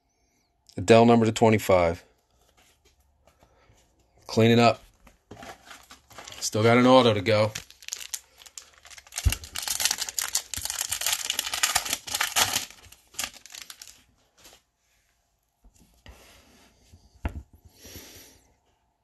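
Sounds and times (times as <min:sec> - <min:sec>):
foil wrapper tearing and crinkling: 0:05.3 - 0:14.1
cards rustling: 0:05.3 - 0:14.6.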